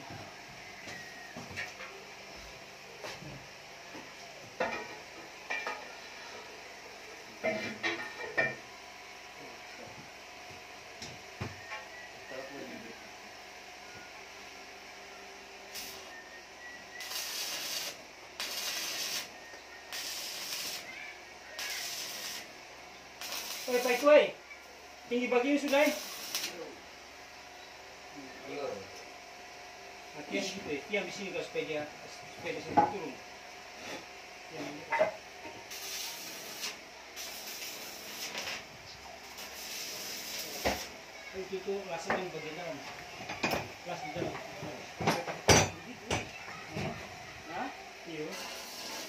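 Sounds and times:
electric arc welding hiss: 15.4s - 27.1s, 35.4s - 43.1s, 47.4s - 49.0s.

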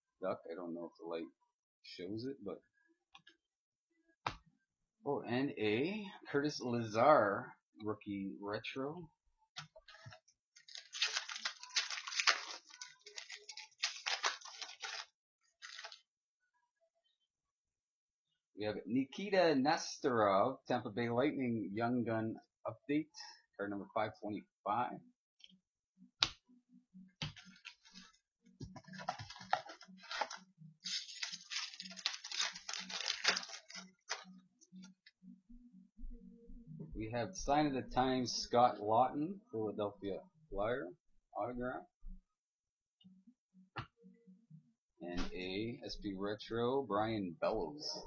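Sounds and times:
cards shuffling: 9.9s - 16.0s, 27.2s - 34.3s
wrapper crinkling and rustling: 9.9s - 16.0s, 28.7s - 34.3s.

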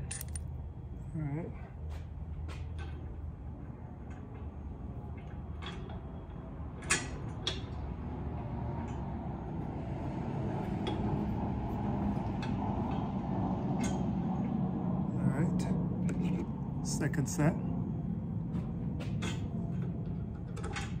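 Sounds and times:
sharp metallic clicks: 0.0s - 0.4s.

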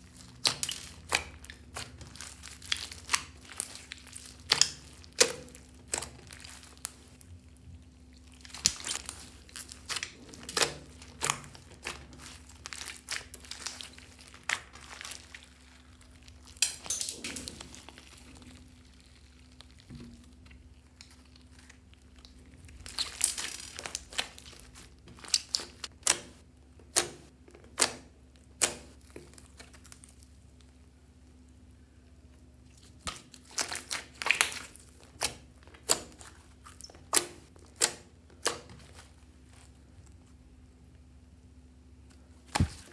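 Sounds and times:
hands squeezing sticky slime: 0.0s - 30.8s, 32.6s - 40.3s, 42.0s - 42.9s.

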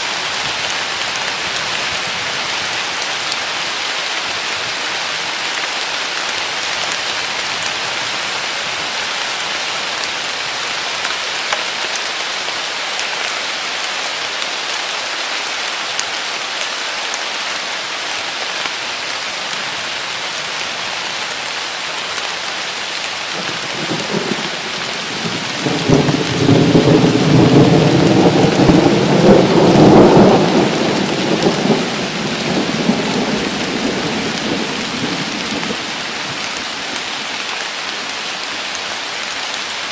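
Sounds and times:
heavy rain falling: 0.0s - 39.9s
thunder rumbling: 23.4s - 36.4s.

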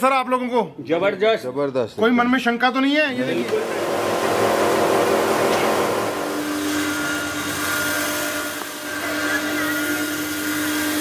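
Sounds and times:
electric grinding mill humming: 3.2s - 11.0s.

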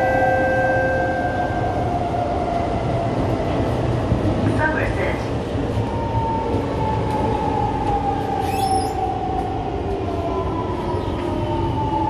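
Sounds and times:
wheels rumbling on track: 0.0s - 12.0s
high wheel squeal: 8.4s - 9.0s.

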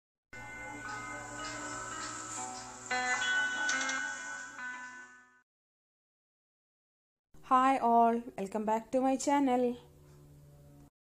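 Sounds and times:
intro music with held chords: 0.4s - 5.4s.

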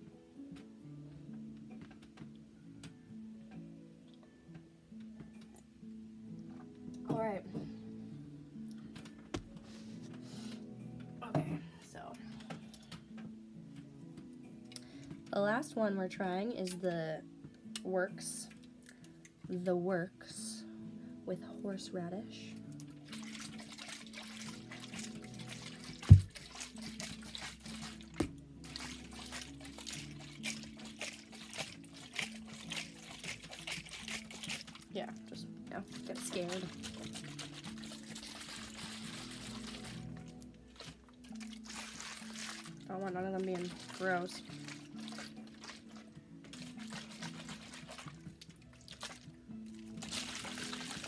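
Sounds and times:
soft instrumental music: 0.0s - 51.0s
drink pouring into a glass: 49.9s - 51.0s.

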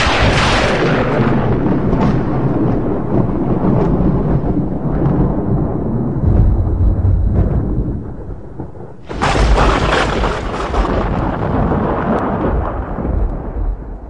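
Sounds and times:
wind rumble on microphone: 0.0s - 14.0s.

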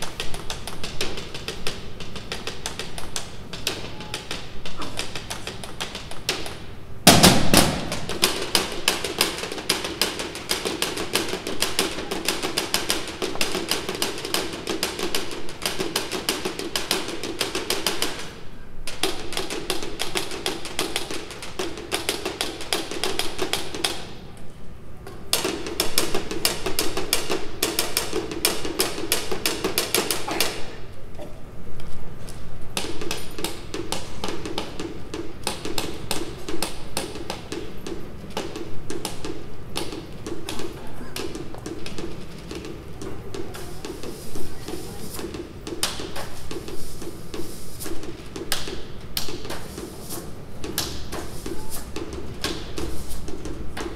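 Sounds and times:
drum and stick strokes: 0.0s - 24.2s, 32.7s - 53.9s
loud drum hit: 7.1s - 8.3s.

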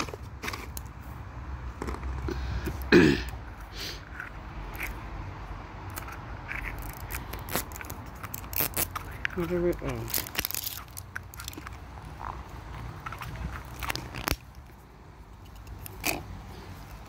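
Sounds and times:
hands handling plastic toy capsule: 0.0s - 1.1s, 5.8s - 17.0s
packaging rustling: 6.6s - 14.7s.

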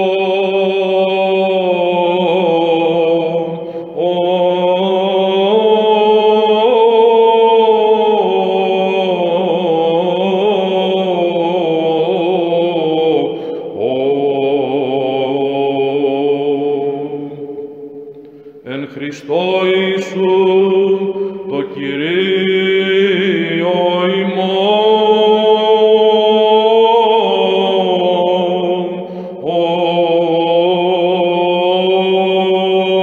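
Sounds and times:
man chanting: 0.0s - 17.6s, 18.6s - 33.0s
breaths: 3.5s - 4.0s, 13.2s - 13.8s, 17.9s - 18.7s, 21.0s - 21.5s, 28.9s - 29.4s.

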